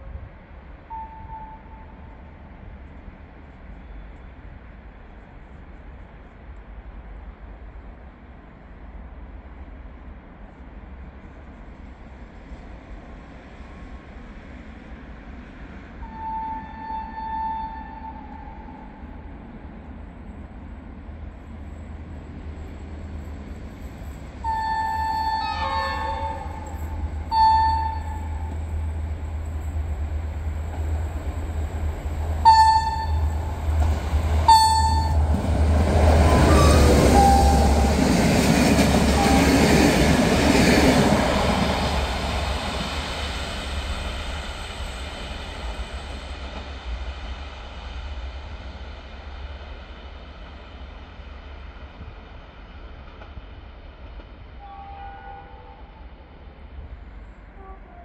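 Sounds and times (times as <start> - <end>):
train wheels rumbling: 0.0 - 58.0
locomotive engine hum: 18.2 - 50.5
locomotive horn blasts: 24.5 - 28.5, 32.4 - 33.5, 34.4 - 35.3, 36.3 - 37.9, 39.1 - 39.6, 54.6 - 55.8.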